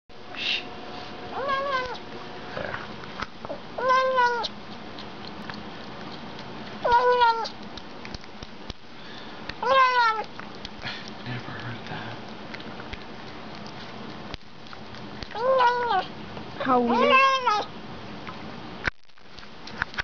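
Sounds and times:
cat meowing: 1.3 - 2.0, 3.8 - 4.5, 6.8 - 7.5, 9.6 - 10.3, 15.3 - 16.1, 16.9 - 17.7.

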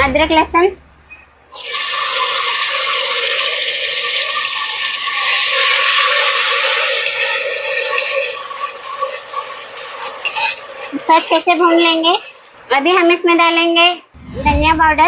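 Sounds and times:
paste sizzling in hot oil: 1.6 - 12.5.

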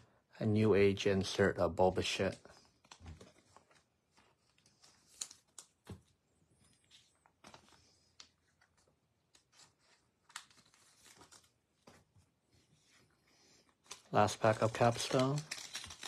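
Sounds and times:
cards rustling: 2.0 - 16.0
cards clicking: 13.8 - 16.0.

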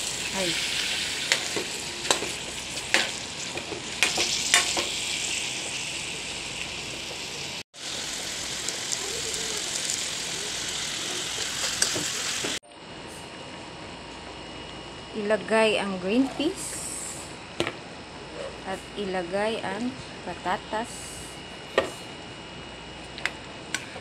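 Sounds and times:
chicken sizzling in a pan: 0.0 - 12.6.

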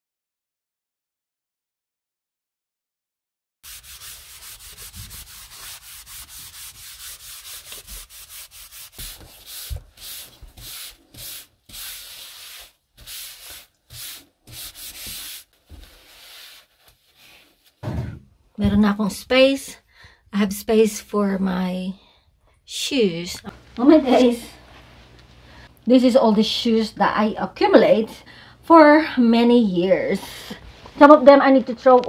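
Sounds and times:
wipe rubbing on laminate floor: 3.6 - 17.8.

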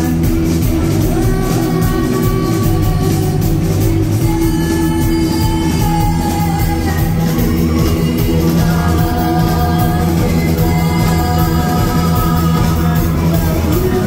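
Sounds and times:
bass guitar: 0.0 - 14.0
drum kit with cymbals: 0.0 - 14.0
electric guitars: 0.0 - 14.0
woman singing: 0.0 - 14.0.

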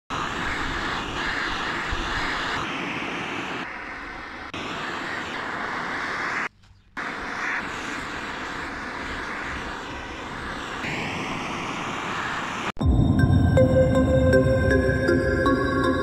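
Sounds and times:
gas torch flame hissing: 0.1 - 12.8.

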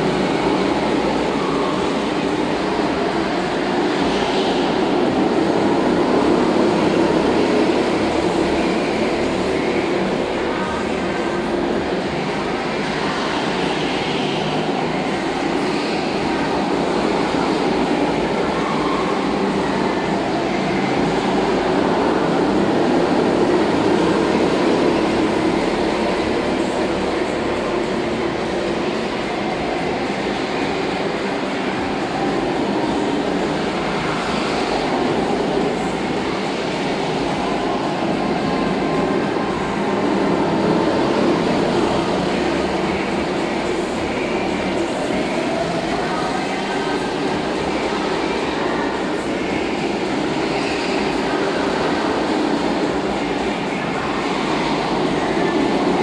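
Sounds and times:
go-karts droning: 0.0 - 56.0.

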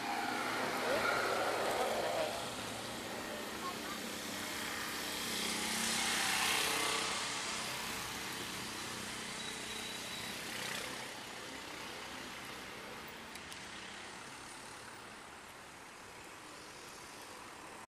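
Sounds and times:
car engines running: 0.0 - 9.4.

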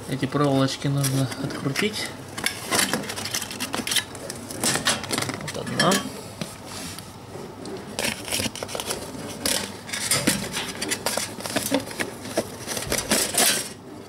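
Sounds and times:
foil insulation crinkling: 8.0 - 13.8.

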